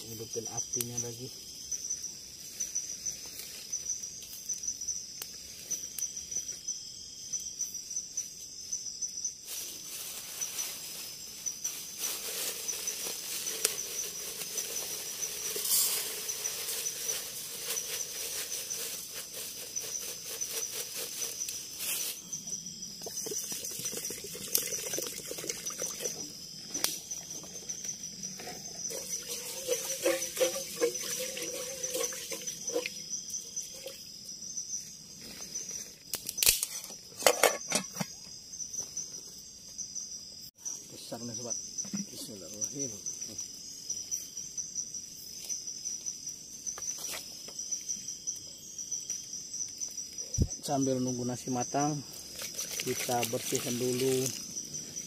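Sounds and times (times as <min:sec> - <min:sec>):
insects trilling: 0:00.0 - 0:55.0
wood fire crackling: 0:10.8 - 0:22.0.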